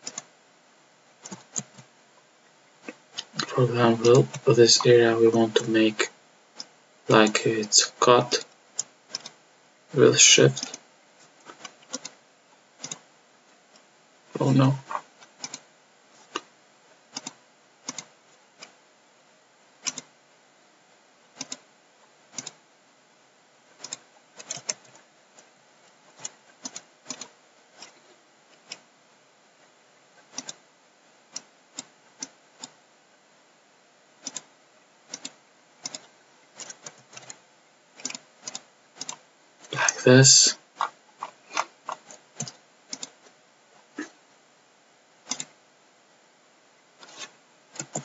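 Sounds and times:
computer mouse clicking: 0.0 - 0.3, 1.2 - 1.9, 8.3 - 9.4, 10.6 - 10.8, 11.4 - 12.2, 12.8 - 13.0, 14.8 - 16.5, 17.1 - 18.8, 19.8 - 20.1, 21.4 - 21.6, 22.3 - 22.6, 23.8 - 25.5, 26.2 - 28.8, 30.2 - 30.6, 34.2 - 34.5, 35.1 - 37.4, 38.0 - 39.9, 40.8 - 43.4, 45.2 - 45.5, 47.0 - 48.0
faint steady hiss: 0.0 - 48.0.

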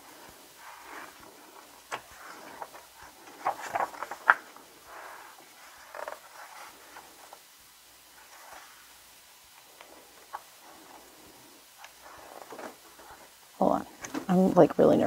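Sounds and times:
paper pages rustling: 0.6 - 7.4, 8.1 - 8.9, 11.8 - 13.3
sharp taps and page flaps: 3.4 - 4.5.

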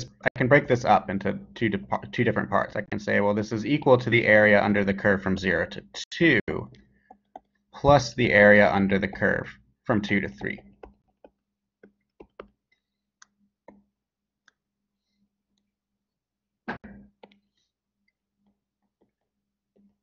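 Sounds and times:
stylus tapping on a screen: 6.7 - 13.9.

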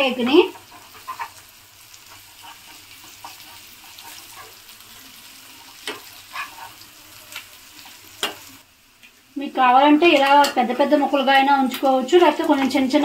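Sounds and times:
eggs and onions sizzling in a pan: 0.0 - 13.0
metal spatula scraping a pan: 0.1 - 7.1.

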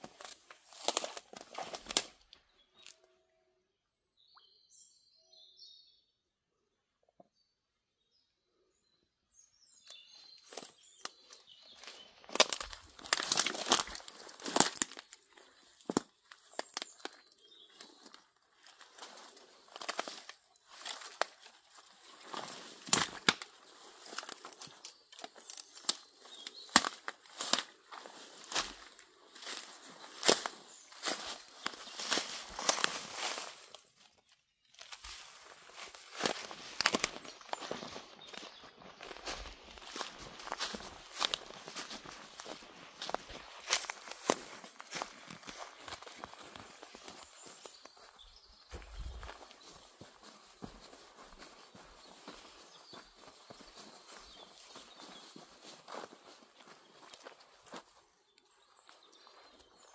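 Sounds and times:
twigs cracking: 0.0 - 3.0, 10.4 - 59.6
footsteps crunching on forest floor: 0.0 - 3.1, 9.8 - 59.9
small bird chirping: 23.5 - 59.9.

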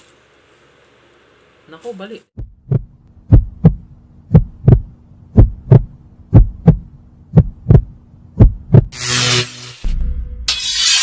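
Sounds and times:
steady low hum: 2.3 - 9.0
heartbeat thumps: 2.4 - 9.0.

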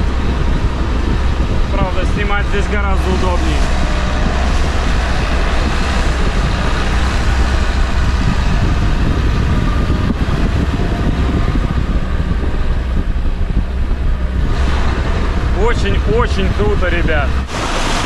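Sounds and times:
boat engine drone: 0.0 - 18.0
wake water rushing: 0.0 - 18.0
wind rushing: 0.0 - 18.0.

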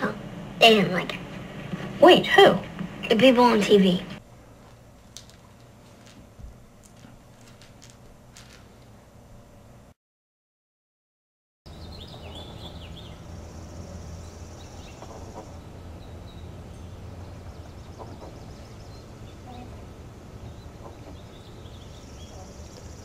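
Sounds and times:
steady low rumble: 0.0 - 5.1
bird trill: 11.7 - 19.7, 20.4 - 23.0
small birds chirping: 11.7 - 23.0.

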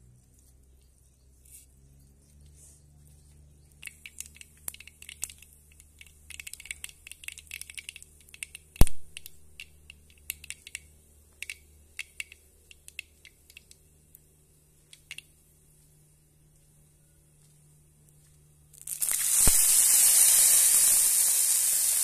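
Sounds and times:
seeds popping in hot oil: 6.3 - 10.4, 18.7 - 22.0.

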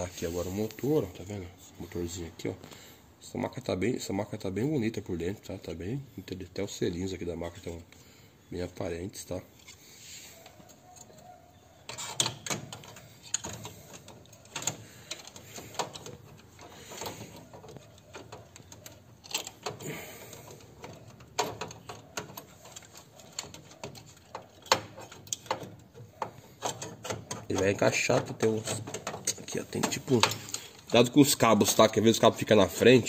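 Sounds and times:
plastic and metal parts clicking: 10.4 - 31.8.

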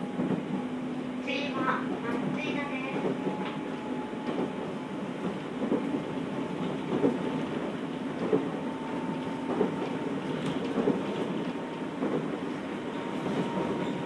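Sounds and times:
train wheels rumbling on rail: 0.0 - 14.0
rail-joint clack: 6.6 - 14.0.

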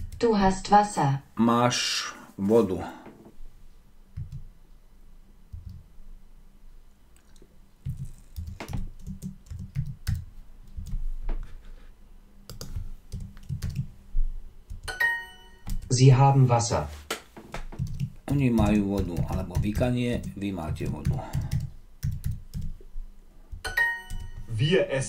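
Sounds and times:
typing on computer keyboard: 7.8 - 11.0, 12.5 - 13.9, 15.6 - 15.9, 17.8 - 22.8.

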